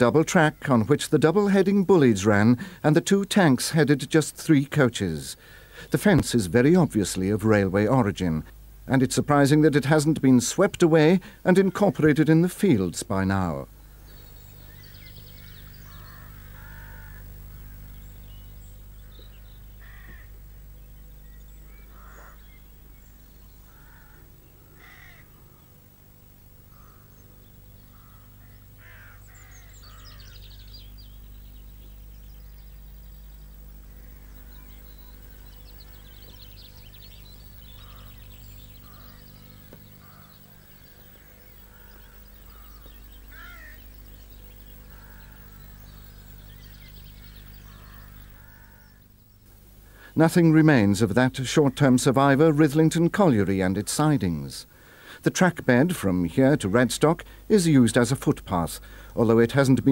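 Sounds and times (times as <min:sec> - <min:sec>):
small birds chirping: 0:00.0 - 0:59.9
steady low hum: 0:00.0 - 0:59.9
crows cawing: 0:14.9 - 0:18.1, 0:19.0 - 0:20.6, 0:21.6 - 0:22.6, 0:23.6 - 0:25.8, 0:26.6 - 0:30.9, 0:33.7 - 0:49.1, 0:54.7 - 0:55.2, 0:58.8 - 0:59.2.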